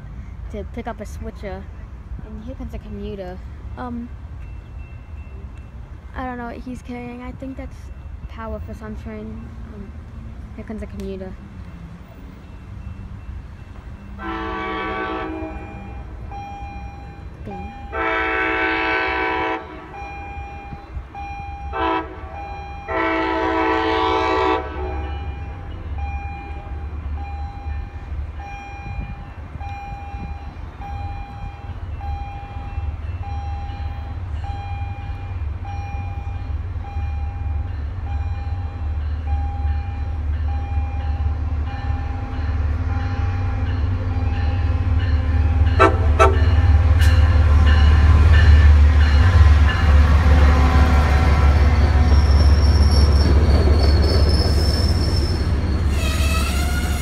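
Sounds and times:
low rumble of approaching train: 0.0s - 57.0s
crossing bell ringing: 2.3s - 57.0s
train horn blasts: 14.2s - 16.0s, 17.9s - 20.1s, 21.6s - 25.2s, 45.6s - 47.2s, 55.9s - 57.0s.

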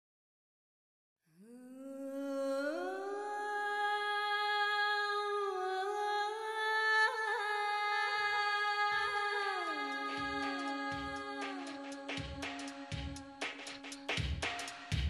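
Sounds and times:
deep drum hit: 14.1s - 15.0s.

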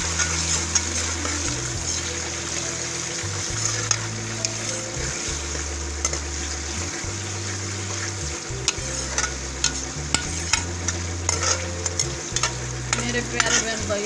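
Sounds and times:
spatula clicking and scraping pan: 0.0s - 2.6s, 3.5s - 6.3s, 8.7s - 13.9s
onions sizzling in hot oil: 0.0s - 14.0s.

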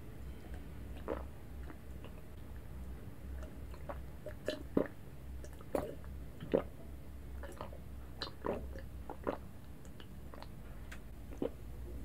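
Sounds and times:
person swallowing a drink: 1.0s - 2.2s, 3.4s - 6.8s, 7.4s - 10.5s, 11.3s - 12.0s.

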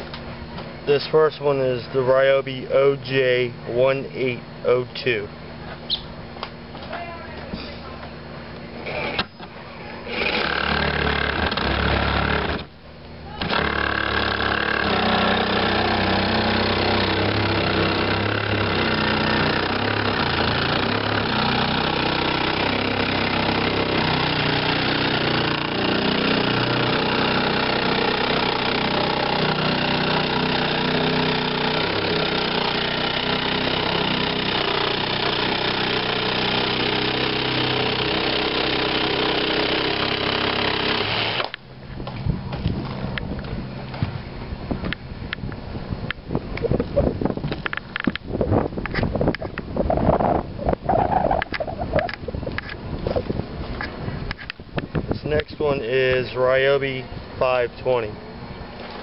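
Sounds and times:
jigsaw sawing through wood: 10.1s - 12.7s, 13.4s - 41.5s.

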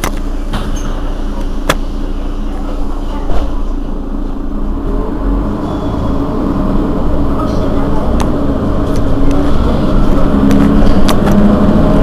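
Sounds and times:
bus diesel engine idling: 0.0s - 12.0s.

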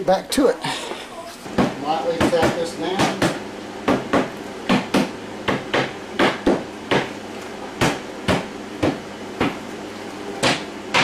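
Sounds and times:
hammer tapping wood: 1.6s - 7.1s, 10.4s - 11.0s.

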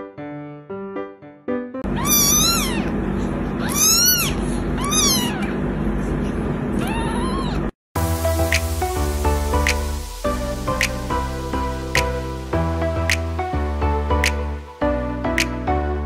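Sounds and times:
kitten meowing: 1.9s - 3.0s, 3.6s - 5.6s, 6.8s - 7.7s
steady low hum: 1.9s - 7.5s.

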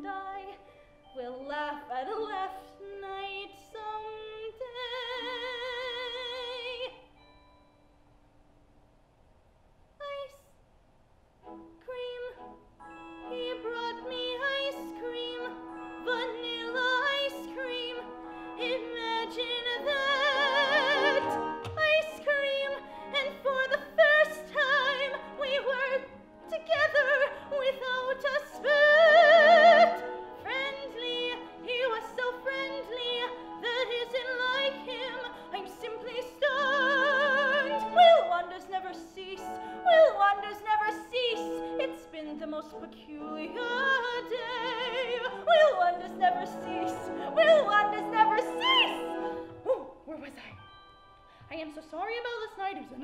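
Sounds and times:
woman singing operatic soprano: 0.0s - 7.1s, 13.3s - 50.8s
instrumental accompaniment: 11.4s - 38.1s.

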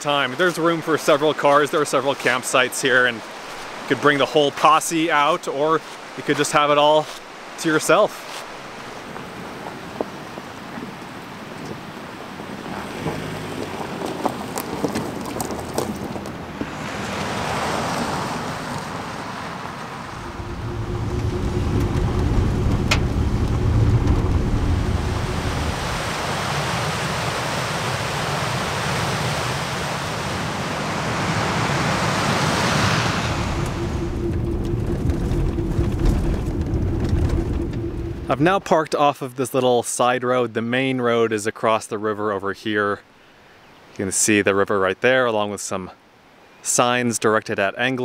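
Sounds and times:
tyre and road rumble: 11.6s - 27.2s, 30.2s - 38.7s
tyre noise on gravel: 12.7s - 18.9s
steady rushing noise: 19.6s - 38.8s
steady hum: 20.1s - 26.3s, 32.2s - 38.7s.

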